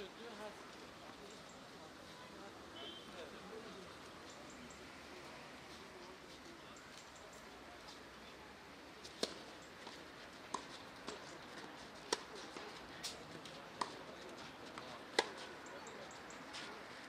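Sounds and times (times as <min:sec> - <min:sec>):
tennis ball hits and bounces: 0:09.0 - 0:13.2, 0:13.8 - 0:15.5.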